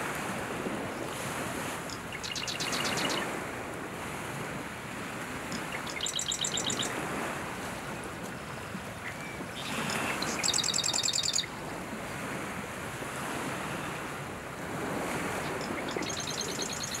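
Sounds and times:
marsh wren rattling trills: 1.9 - 3.2, 5.5 - 6.9, 9.6 - 11.5, 15.6 - 17.0.

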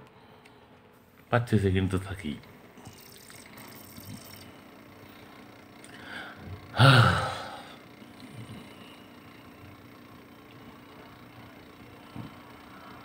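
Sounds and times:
faint steady hum: 0.0 - 13.0
person breathing in: 5.9 - 7.8
person sighing: 5.9 - 7.8.

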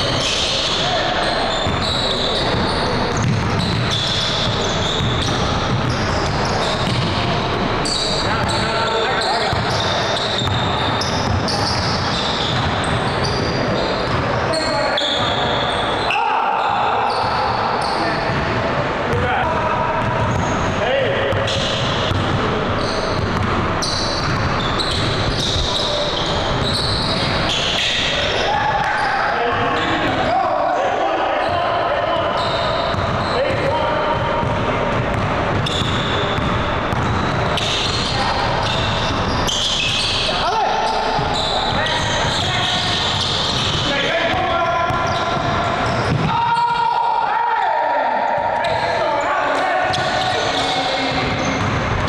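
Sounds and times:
gym hubbub: 0.0 - 52.0
players' voices: 0.0 - 52.0
sneakers squeaking: 0.0 - 52.0
basketball bouncing: 2.5 - 7.6, 9.5 - 14.3, 18.3 - 19.3, 20.0 - 20.6, 21.3 - 22.5, 23.1 - 25.9, 32.9 - 40.3, 41.0 - 46.4, 49.9 - 52.0.

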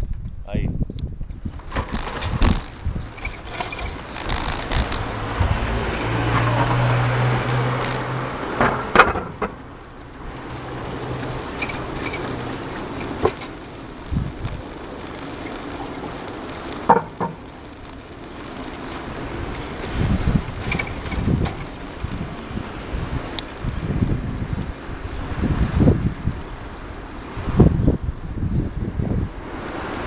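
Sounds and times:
bicycle clicks and rattles: 0.0 - 30.0
wind buffeting microphone: 0.0 - 30.0
low engine hum: 1.3 - 30.0.

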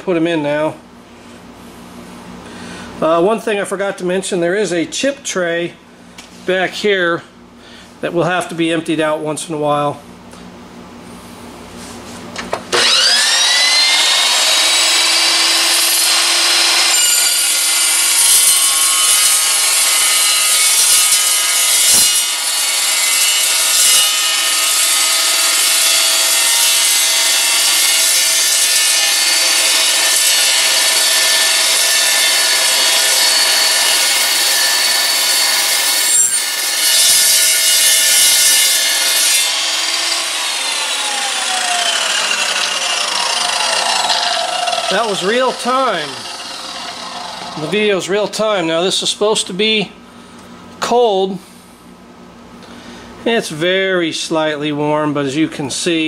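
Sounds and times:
chop saw cutting steel tubing: 12.7 - 48.6.

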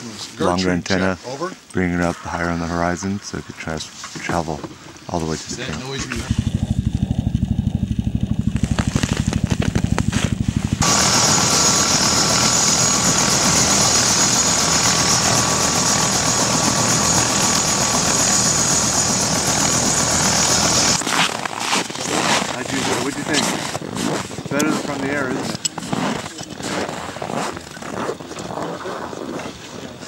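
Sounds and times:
helicopter turbine whine: 5.0 - 26.6
helicopter rotor chopping: 5.1 - 27.7.

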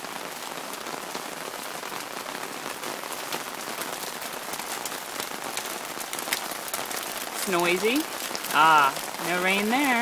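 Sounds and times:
light rain on wooden deck: 0.0 - 10.0
water drips ticking: 4.4 - 10.0.

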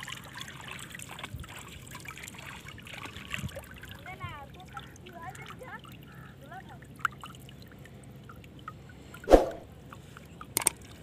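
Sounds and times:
water dripping and trickling: 0.0 - 11.0
sharp splash: 9.3 - 9.7.

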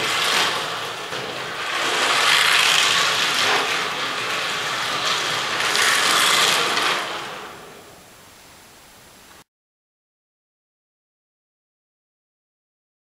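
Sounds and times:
model cars whirring past: 0.0 - 8.0.

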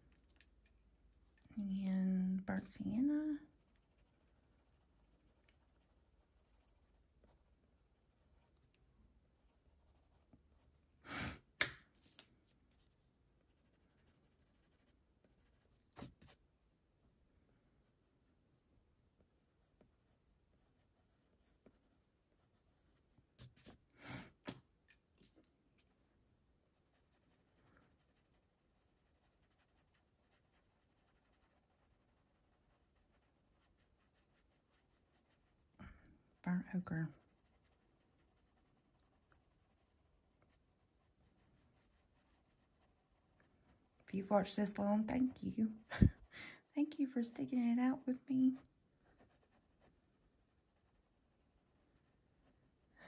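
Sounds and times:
pencil scratching on paper: 2.6 - 8.8, 9.4 - 10.9, 12.7 - 16.4, 19.4 - 23.9, 26.8 - 35.7, 36.4 - 53.0.

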